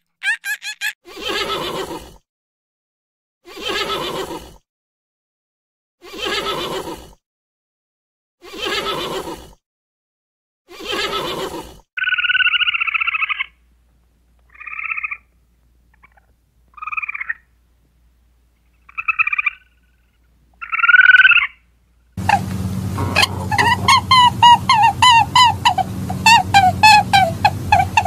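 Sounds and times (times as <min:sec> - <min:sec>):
horse call: 0:22.2 - 0:28.0
squirrel trilling chirrs: 0:22.2 - 0:28.0.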